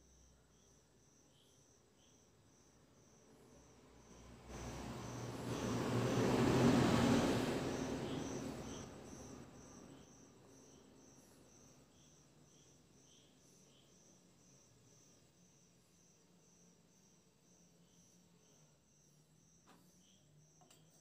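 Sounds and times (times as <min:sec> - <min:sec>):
insects chirping: 0:00.0 - 0:21.0
vehicle passing: 0:03.9 - 0:10.0.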